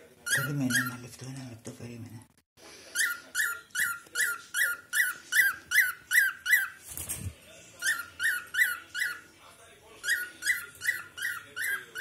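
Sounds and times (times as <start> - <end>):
cockatiel chirping: 0.2 - 1.1, 2.9 - 6.8, 7.8 - 9.3, 10.0 - 12.0.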